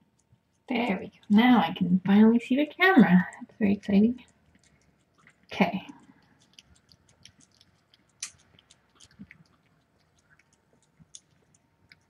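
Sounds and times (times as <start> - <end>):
cat chewing and smacking: 0.0 - 2.1, 3.0 - 12.0.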